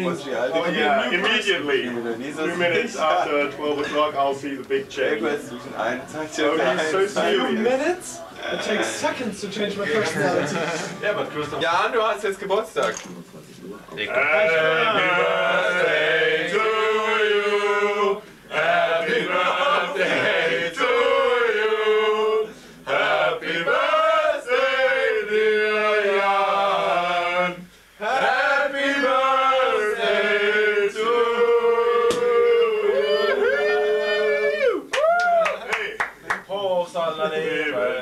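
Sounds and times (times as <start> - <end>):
group of voices singing: 14.1 - 33.1.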